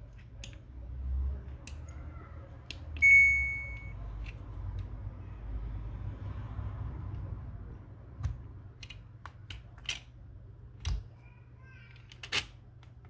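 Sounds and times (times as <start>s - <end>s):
light clicks of handled connectors: 0.1s - 0.7s, 2.6s - 3.0s, 8.2s - 10.1s
high buzzer beep: 3.0s - 3.9s.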